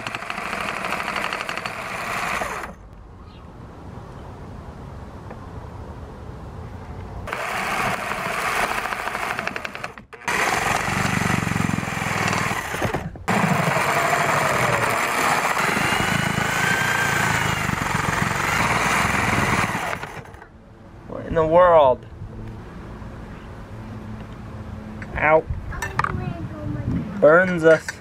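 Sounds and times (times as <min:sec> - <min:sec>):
jigsaw sawing wood: 0:00.0 - 0:02.8, 0:07.3 - 0:20.4.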